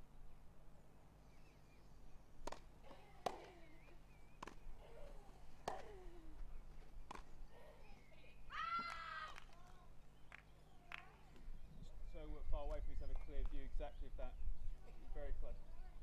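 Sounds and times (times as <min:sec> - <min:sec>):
tennis racket strikes: 0:02.4 - 0:04.6, 0:05.6 - 0:06.2
tennis ball bounces: 0:02.4 - 0:08.0.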